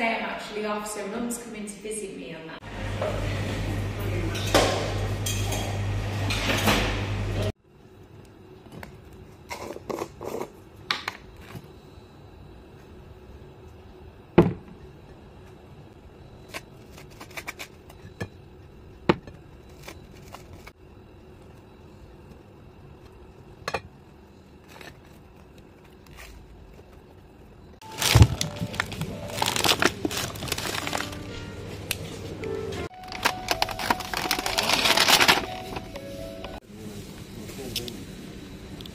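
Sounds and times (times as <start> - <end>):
packaging rustling: 27.8 - 31.4, 32.9 - 36.0
music: 27.8 - 36.6.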